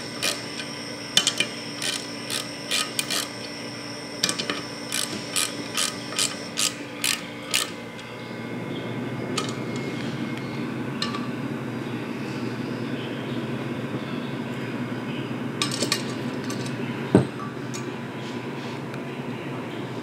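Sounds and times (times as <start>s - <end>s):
steady low hum: 0.0s - 20.0s
metal tools clinking: 0.2s - 3.5s, 4.2s - 8.1s.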